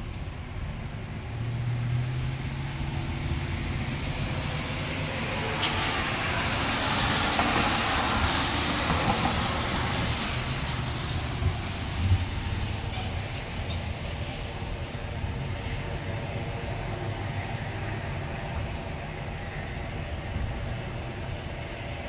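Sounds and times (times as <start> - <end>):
vehicle passing by: 1.2 - 12.9.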